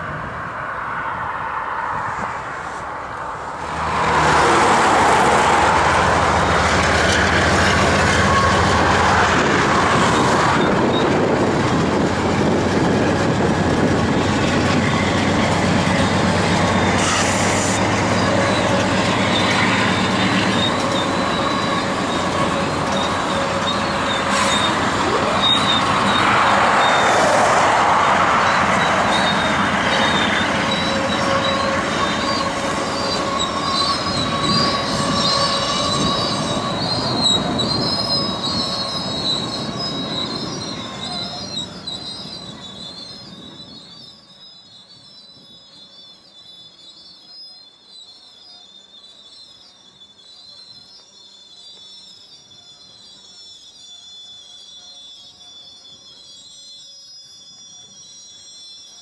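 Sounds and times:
diesel locomotive engines droning: 0.0s - 59.0s
high wheel squeal: 0.9s - 59.0s
train wheels rumbling on rails: 1.9s - 44.1s.

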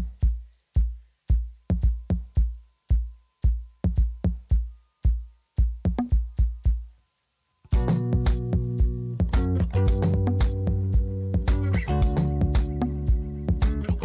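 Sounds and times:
electronic beat with kick drum: 0.0s - 7.0s, 7.7s - 14.0s
sustained bass and chords: 7.7s - 14.0s.

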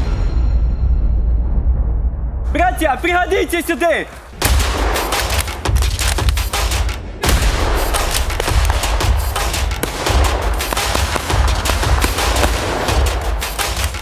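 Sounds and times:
rapid automatic gunfire: 7.7s - 14.0s.

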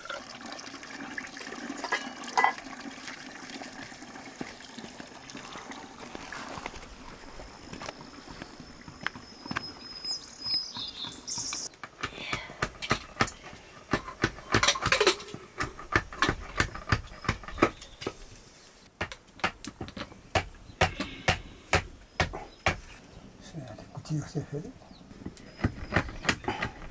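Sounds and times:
sharp knocks and clicks: 10.5s - 18.2s, 19.0s - 22.8s, 25.2s - 26.9s.

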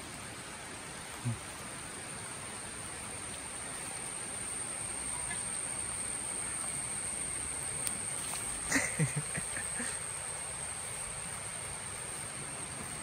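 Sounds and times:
outdoor hiss: 0.0s - 13.0s
high-pitched insect drone: 3.9s - 13.0s.

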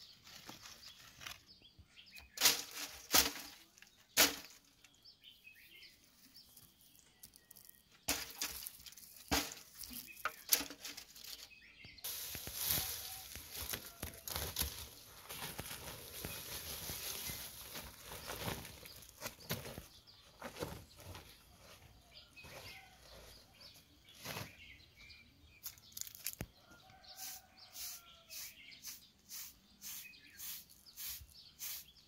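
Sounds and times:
dry leaves rustling: 0.0s - 1.5s, 2.3s - 4.7s, 7.3s - 21.8s.

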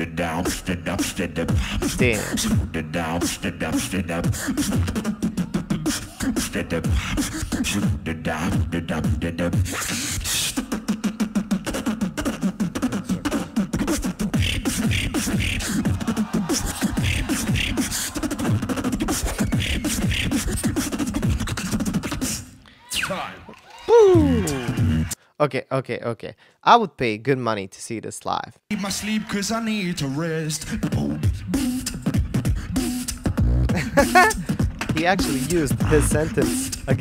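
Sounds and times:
beatboxing into a microphone: 0.0s - 23.0s, 23.9s - 25.3s, 28.7s - 37.0s
deep sliding bass notes: 35.7s - 36.4s.

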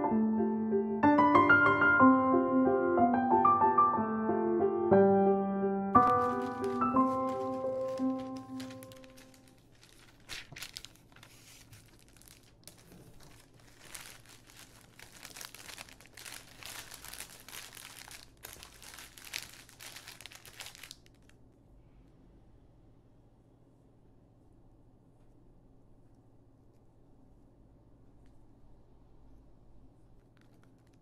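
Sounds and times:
wrapping material crumpling: 6.0s - 21.4s, 30.2s - 31.0s
faint low hum: 6.0s - 31.0s.

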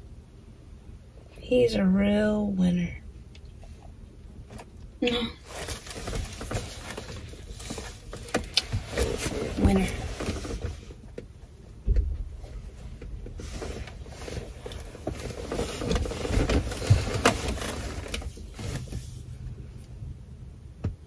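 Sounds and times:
low rumble inside car cabin: 0.0s - 21.0s
people shifting in seats: 5.4s - 11.3s, 12.3s - 19.4s.

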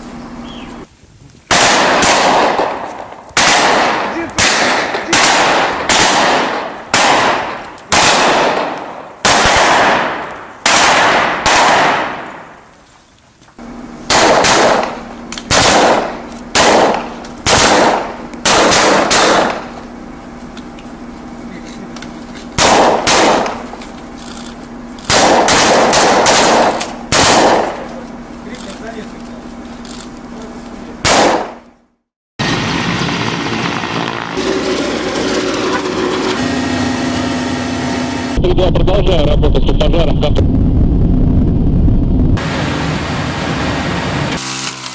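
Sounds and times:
gunshots with echo: 1.5s - 12.6s, 14.1s - 19.7s, 22.6s - 23.7s, 25.1s - 27.9s, 31.0s - 31.6s.

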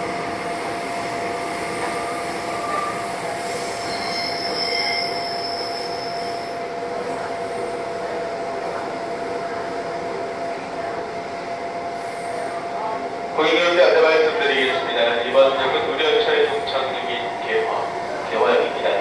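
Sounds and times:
wheel squeal: 1.9s - 6.5s.

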